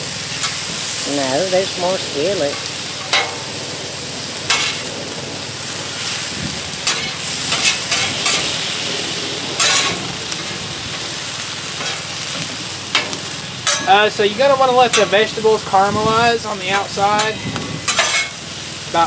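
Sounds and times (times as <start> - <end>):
meat and vegetables sizzling: 0.0 - 19.0
metal spatulas scraping griddle: 4.5 - 4.9, 6.8 - 8.7, 9.6 - 10.1, 11.7 - 14.0, 14.9 - 15.4, 16.7 - 18.4.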